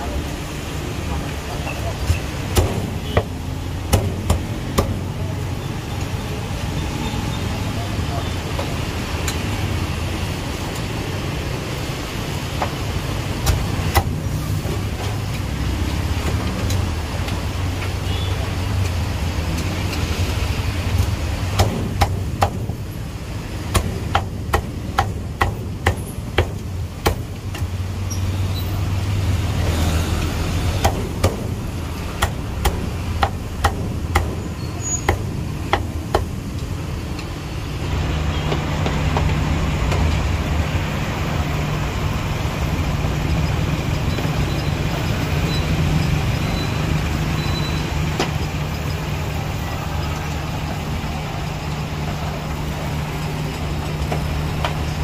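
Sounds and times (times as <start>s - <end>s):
cleaver chopping on wooden block: 21.5s - 22.8s, 23.6s - 27.7s.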